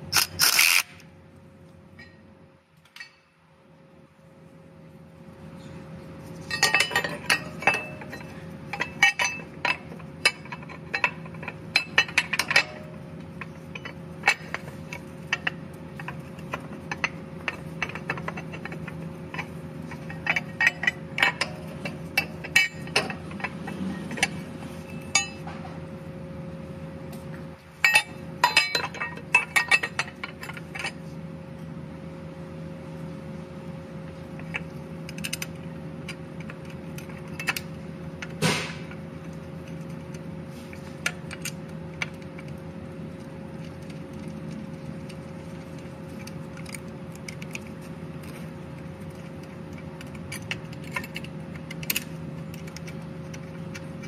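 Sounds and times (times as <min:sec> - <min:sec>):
steady low hum: 0:00.0 - 0:54.0
metal tools clinking: 0:06.4 - 0:25.7, 0:27.8 - 0:31.0.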